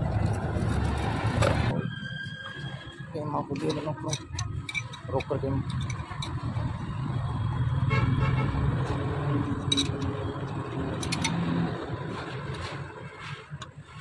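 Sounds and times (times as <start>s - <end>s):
spanner clinking on metal nuts: 3.5s - 6.6s, 9.5s - 11.5s.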